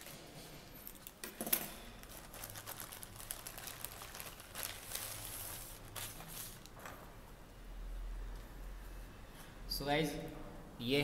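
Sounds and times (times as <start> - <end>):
plastic bag crinkling: 2.0 - 6.9.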